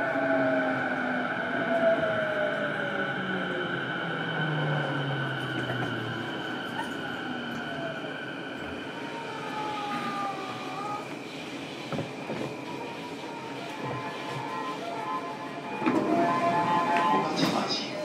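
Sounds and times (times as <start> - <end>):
train wheels rumbling on rail: 8.6 - 18.0.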